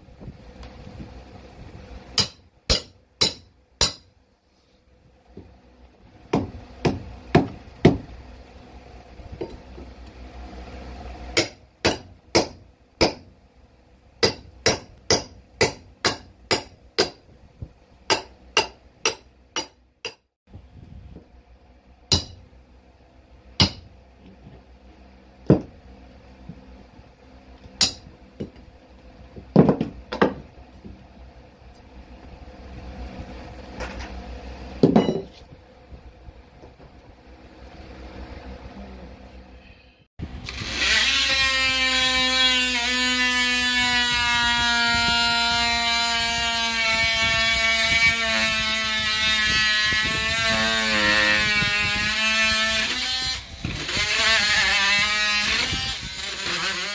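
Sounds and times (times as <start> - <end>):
hammer striking wood: 2.2 - 4.1, 6.3 - 8.1, 11.4 - 13.3, 14.2 - 17.2, 18.1 - 20.2, 22.1 - 22.4, 23.6 - 23.9, 25.5 - 25.8, 29.5 - 30.4
knocks and thuds: 25.5 - 25.8, 29.4 - 30.5.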